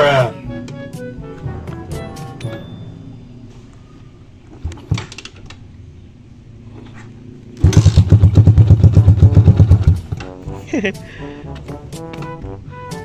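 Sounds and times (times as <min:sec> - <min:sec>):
motorcycle engine starting: 0:06.5 - 0:10.4.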